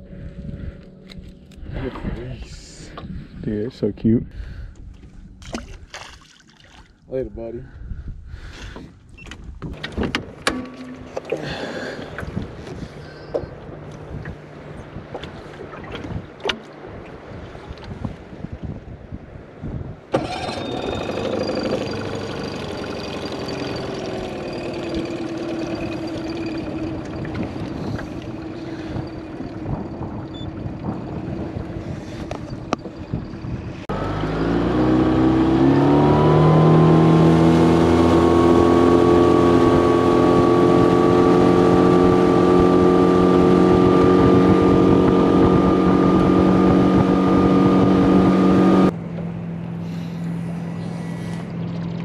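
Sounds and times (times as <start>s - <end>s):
outboard motor running: 9.6s - 17.8s, 20.1s - 52.0s.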